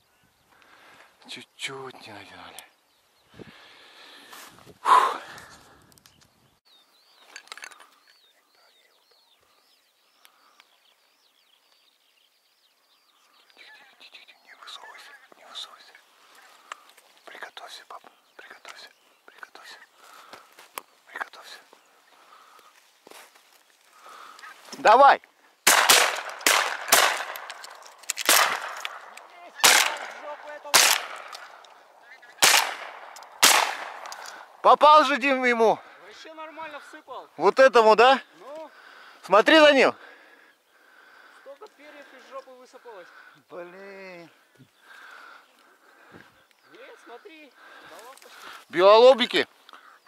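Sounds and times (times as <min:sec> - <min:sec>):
distant geese calling: 0:13.0 - 0:50.0
shotguns firing: 0:25.6 - 0:31.7, 0:32.4 - 0:34.5.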